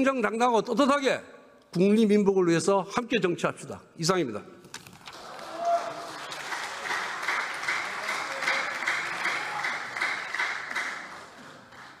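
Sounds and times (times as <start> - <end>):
applause in large chamber: 5.0 - 12.0.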